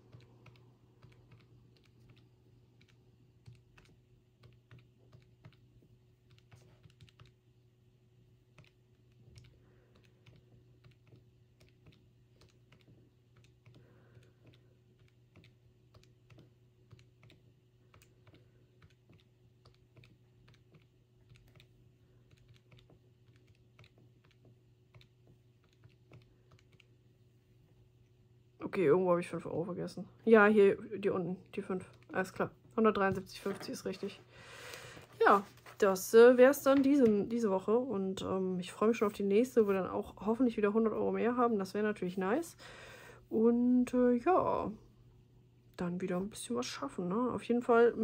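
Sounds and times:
calculator keys tapping: 0:00.0 - 0:07.5, 0:08.4 - 0:27.0.

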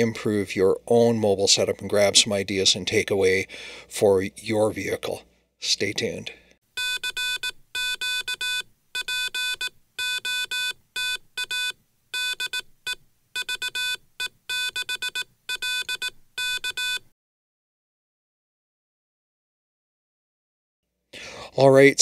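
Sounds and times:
morse code beeps: 0:06.8 - 0:17.1.

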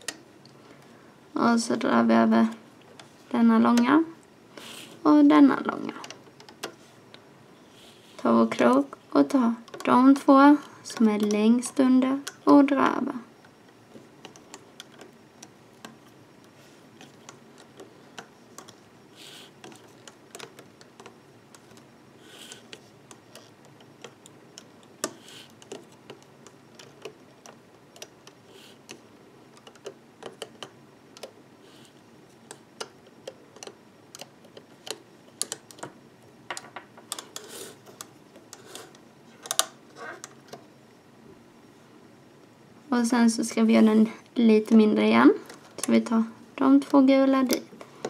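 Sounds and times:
loom hook clicking on plastic pegs: 0:10.9 - 0:12.6.

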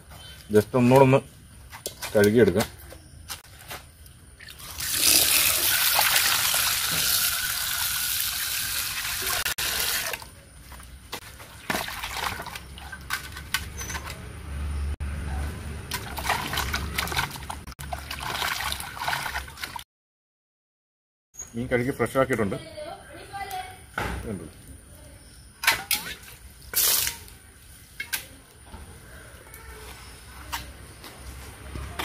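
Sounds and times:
small clicks and splashes: 0:11.1 - 0:14.2, 0:15.9 - 0:19.8.

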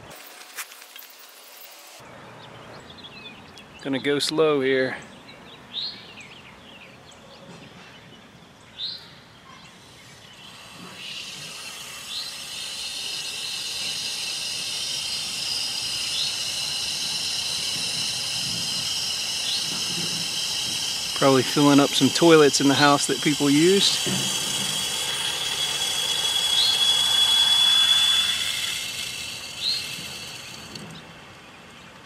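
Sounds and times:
bird chirping: 0:02.0 - 0:04.2, 0:04.9 - 0:32.0
water hissing through valve: 0:09.8 - 0:31.4.

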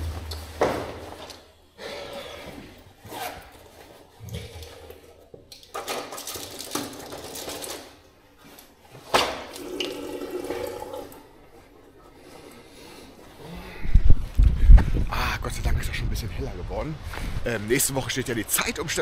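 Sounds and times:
tap water running into basin: 0:09.5 - 0:11.3.

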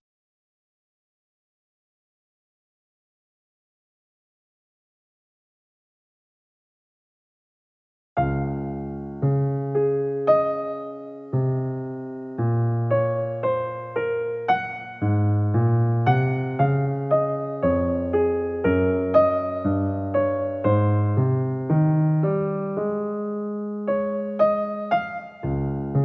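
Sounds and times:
slow gentle piano music: 0:08.2 - 0:26.0.

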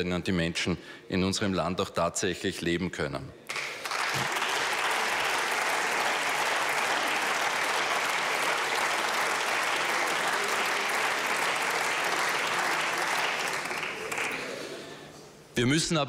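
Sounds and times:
crowd applauding: 0:03.5 - 0:14.9.

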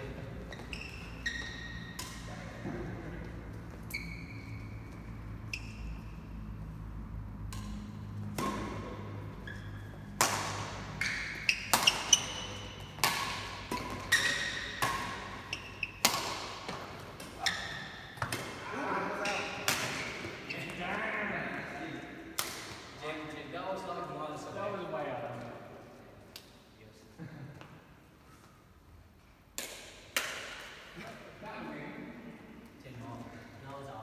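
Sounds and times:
shoes squeaking on court: 0:00.0 - 0:06.6, 0:07.7 - 0:20.9
racket striking shuttlecock: 0:01.4 - 0:02.8, 0:07.3 - 0:18.6, 0:19.3 - 0:20.4, 0:22.3 - 0:22.9, 0:29.5 - 0:30.8.

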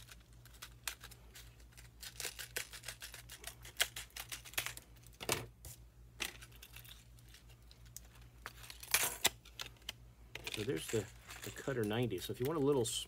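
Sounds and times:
plastic crinkling: 0:06.3 - 0:12.9.

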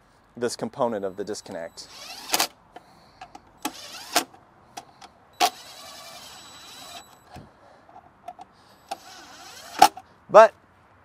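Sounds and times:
cordless drill driving screws: 0:01.9 - 0:02.5, 0:03.6 - 0:04.3, 0:05.4 - 0:07.2, 0:08.9 - 0:10.0.

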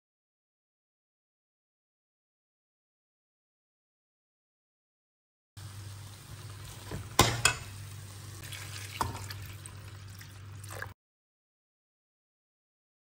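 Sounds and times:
faint sizzle: 0:05.6 - 0:11.0
spoon stirring frying food: 0:05.7 - 0:10.8
spoon knocking against pan: 0:06.9 - 0:07.7.

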